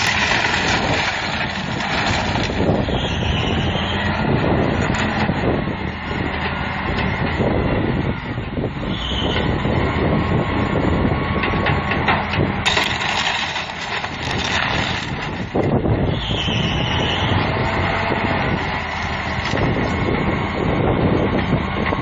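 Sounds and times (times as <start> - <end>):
walls cracking and crunching: 0.0 - 3.0, 12.6 - 15.7
loader diesel engine under load: 0.0 - 22.0.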